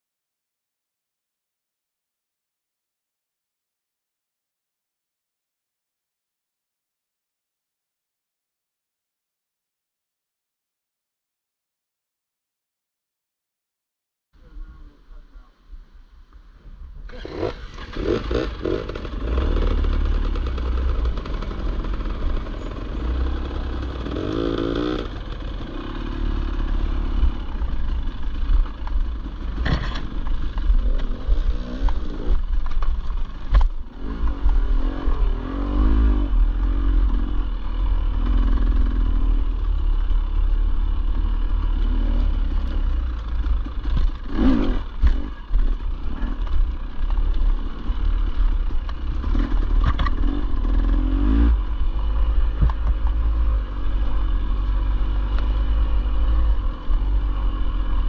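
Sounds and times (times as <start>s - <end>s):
dirt bike engine revving: 17.1s - 58.0s.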